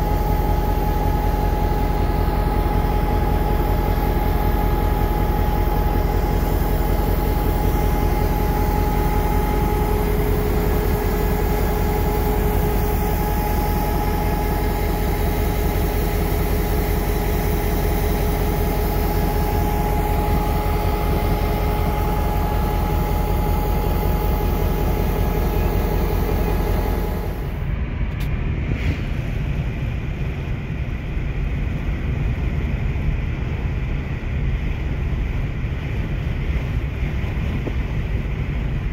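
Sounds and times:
diesel locomotive idling: 0:00.0 - 0:38.9
wind rush on microphone: 0:27.6 - 0:38.9.

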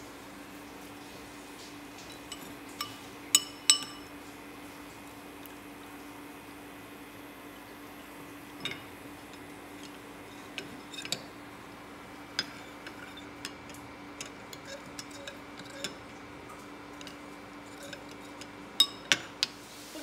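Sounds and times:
faint steady hum: 0:00.0 - 0:20.0
spoon clinking against bowl: 0:02.1 - 0:04.1, 0:08.6 - 0:11.3, 0:17.0 - 0:19.5.

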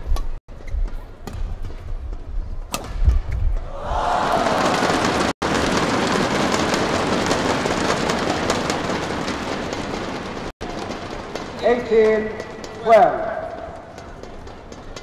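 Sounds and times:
crowd cheering: 0:03.6 - 0:09.3
crowd clapping: 0:03.9 - 0:10.5.

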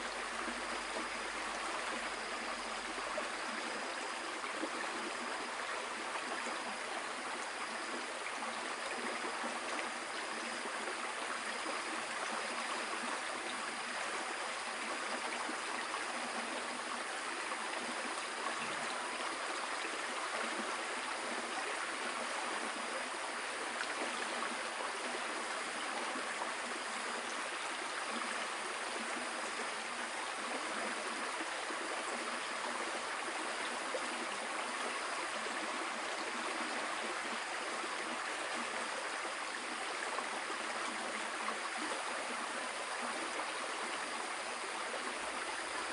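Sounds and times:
flowing water rushing: 0:00.0 - 0:45.9.

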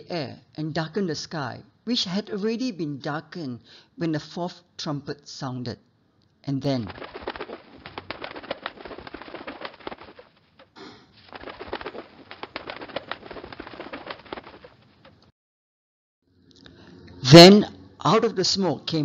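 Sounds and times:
locust swarm wings clicking: 0:06.8 - 0:15.3.

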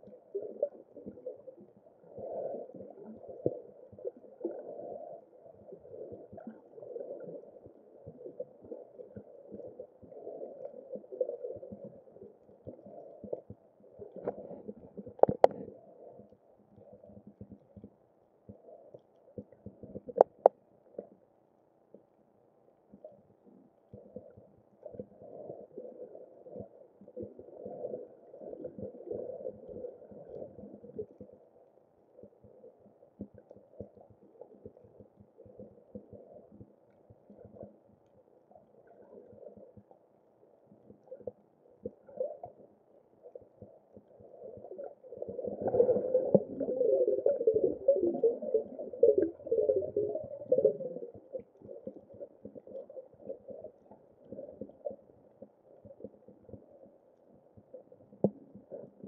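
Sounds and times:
muffled underwater water noise: 0:00.0 - 0:59.0
bubbling gurgle: 0:44.2 - 0:54.7.

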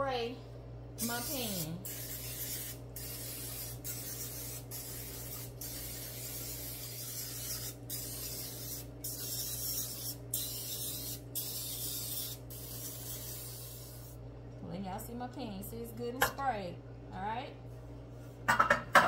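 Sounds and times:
aerosol spray hissing: 0:01.0 - 0:14.2.

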